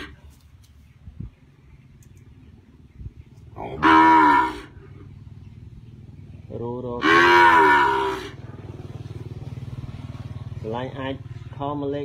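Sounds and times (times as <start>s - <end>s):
cattle mooing: 3.6s - 4.9s, 7.0s - 8.4s.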